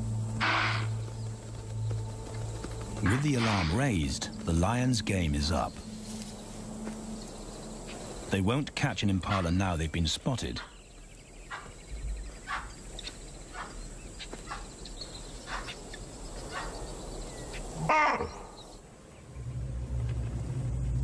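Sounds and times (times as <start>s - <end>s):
animal alarm calls: 0.4s - 1.0s, 3.0s - 3.9s, 11.4s - 16.9s, 17.5s - 18.6s
low steady hum: 19.0s - 21.0s.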